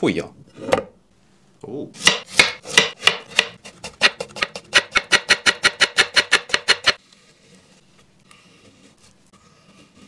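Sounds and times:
knife chopping cucumber on board: 0:02.0 - 0:07.0.

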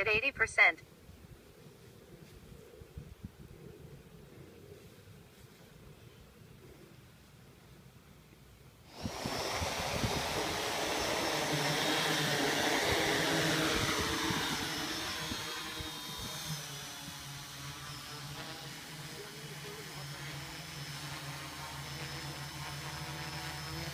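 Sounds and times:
drone propellers whirring: 0:08.9 - 0:23.9.

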